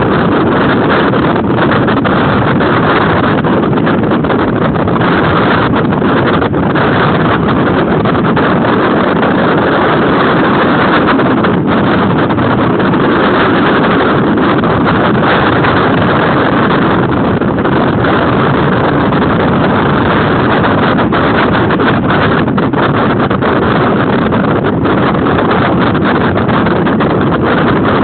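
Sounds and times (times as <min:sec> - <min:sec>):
water noise: 0:00.0 - 0:28.0
wind on microphone: 0:00.0 - 0:28.0.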